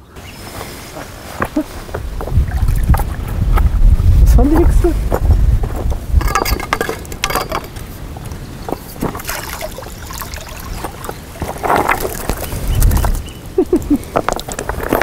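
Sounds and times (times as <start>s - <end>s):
wind on microphone: 1.3s - 15.0s
water splashing and sloshing: 1.6s - 3.7s, 8.8s - 15.0s.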